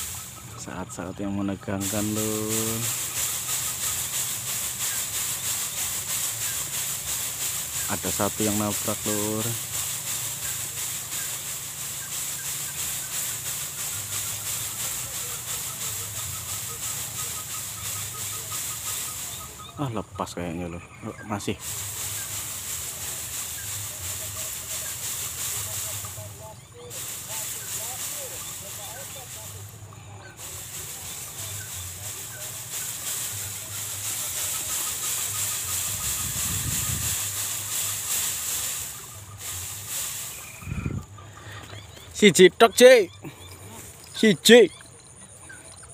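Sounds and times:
steady hiss: 0.0 - 45.9
wind rumble on microphone: 36.0 - 37.2, 40.6 - 41.2.

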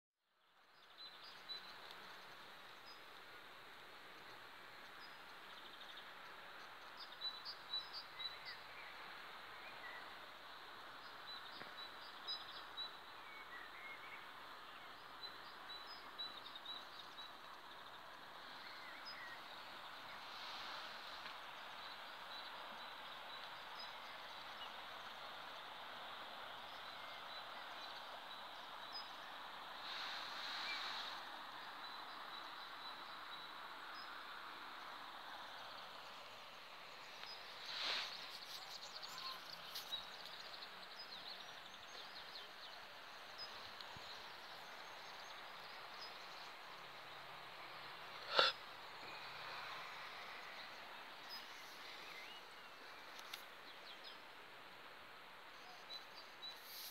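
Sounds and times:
faint background hiss: 0.3 - 56.9
birds chirping: 37.0 - 54.3.

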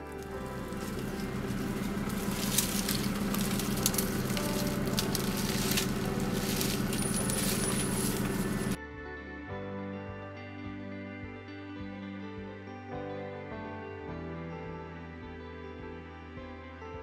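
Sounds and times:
leaves rustling: 0.0 - 8.8
twigs crackling and snapping: 0.0 - 8.8
soft music: 0.0 - 17.0.

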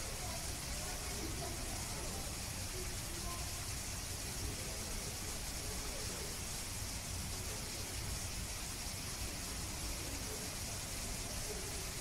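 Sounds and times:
background hiss: 0.0 - 12.0
faint distant voices: 0.0 - 12.0.

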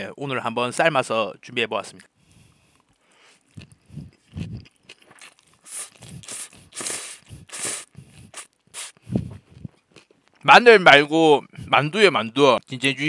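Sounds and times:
mouth noises: 2.3 - 10.1
noodle slurping: 2.4 - 9.7.

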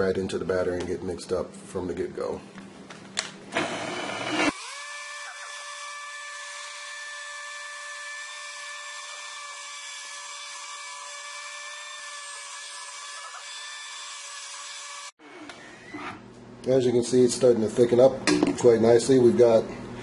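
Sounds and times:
stick blender motor whining: 3.5 - 16.2.

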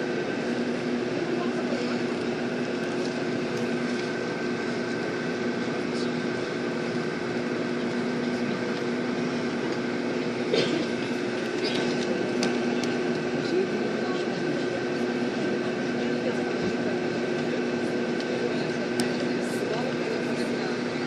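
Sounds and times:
air conditioning: 0.0 - 21.0
vehicle engine drone: 0.0 - 21.0.

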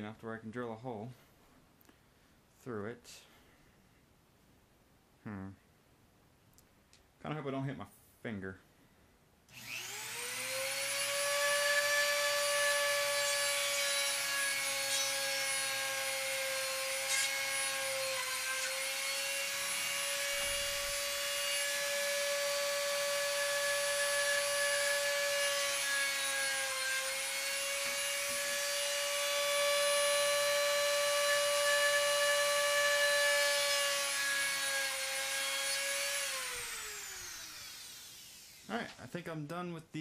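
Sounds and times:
rotary tool drilling wood: 9.5 - 38.9.

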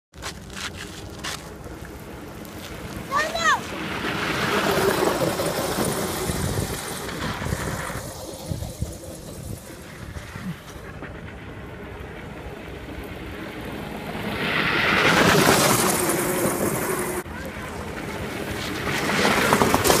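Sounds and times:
toy car crunching over gravel: 0.2 - 9.6, 18.5 - 20.0.

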